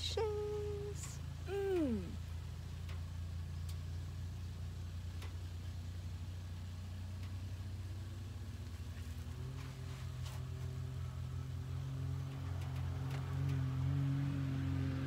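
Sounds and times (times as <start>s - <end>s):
engine idling: 0.0s - 13.8s
faint clicks: 2.8s - 3.9s, 5.1s - 5.4s.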